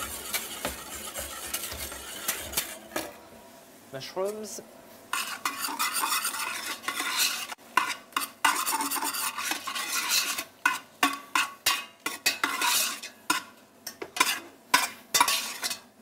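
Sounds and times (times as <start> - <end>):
mushrooms sizzling: 0.0 - 2.9
metal utensil scraping a pot: 0.0 - 3.2, 5.1 - 13.5, 14.2 - 15.9.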